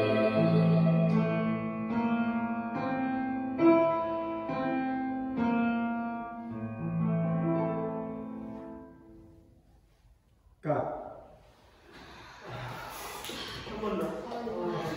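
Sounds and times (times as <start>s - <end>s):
keyboard playing slow chords: 0.0s - 6.2s.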